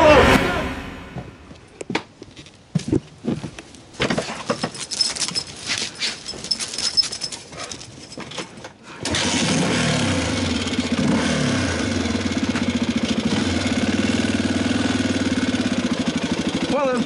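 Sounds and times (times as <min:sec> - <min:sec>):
dirtbike engine running: 0:10.6 - 0:17.0.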